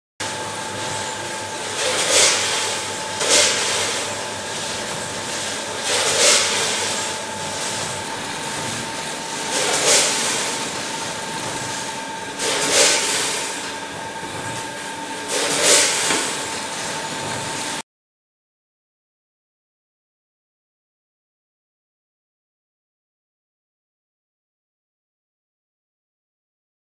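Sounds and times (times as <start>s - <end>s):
machine hum: 0.2s - 17.8s.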